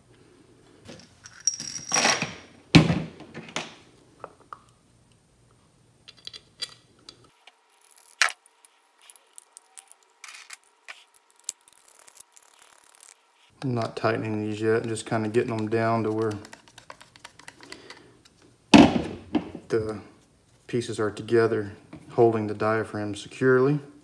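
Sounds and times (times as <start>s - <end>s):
screws clinking on floor: 0.9s - 2.4s.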